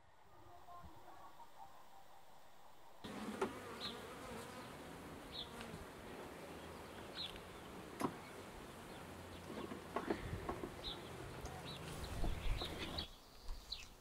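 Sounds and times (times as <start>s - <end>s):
honeybees buzzing: 3.0s - 13.6s.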